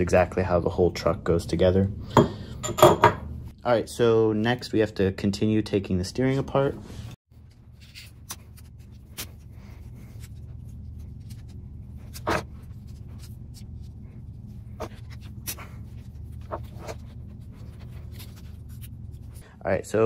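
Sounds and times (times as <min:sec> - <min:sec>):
low steady hum: 0:06.6 - 0:20.0.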